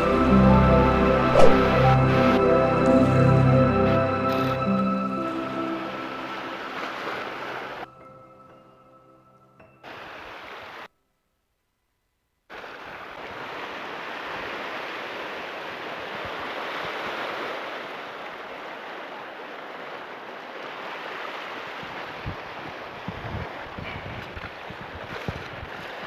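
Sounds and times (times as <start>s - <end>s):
waves washing over rocks: 1.2s - 2.6s, 5.3s - 7.9s, 12.5s - 26.0s.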